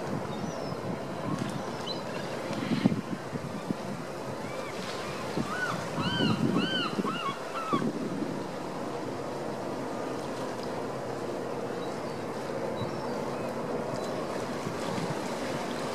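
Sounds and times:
harbour water lapping: 0.0s - 15.9s
wind: 0.0s - 15.9s
bird calls: 4.5s - 7.8s.

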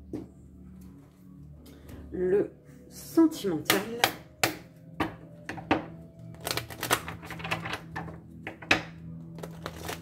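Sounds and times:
faint background music: 0.0s - 10.0s
cards being shuffled: 6.3s - 8.2s, 9.3s - 10.0s.

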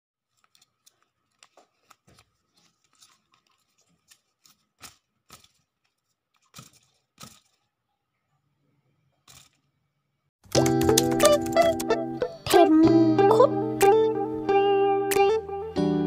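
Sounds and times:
paper rustling: 0.2s - 7.7s.

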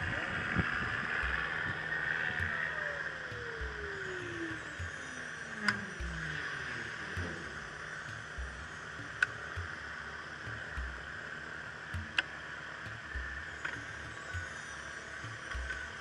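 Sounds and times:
wind buffeting microphone: 0.0s - 5.0s
sharp clicks: 5.6s - 11.2s.

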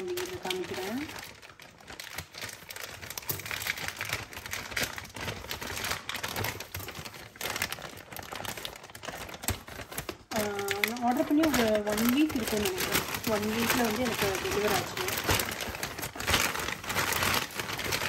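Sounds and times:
plastic bag crinkling: 0.0s - 18.0s.

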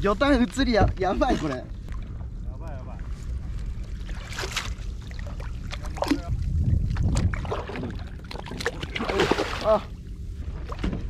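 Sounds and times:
wind rumbling on microphone: 0.0s - 11.0s
lapping water: 4.0s - 9.9s.

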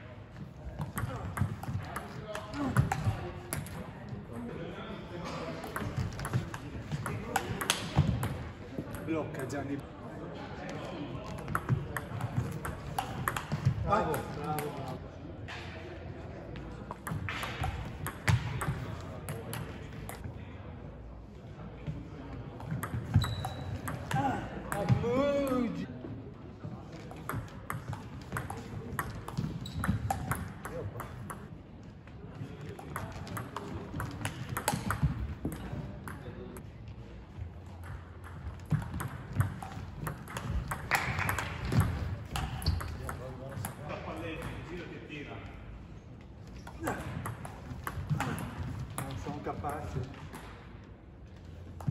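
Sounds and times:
ping pong ball clicking: 11.5s - 14.7s, 27.2s - 31.4s, 37.8s - 43.8s, 47.2s - 48.4s.

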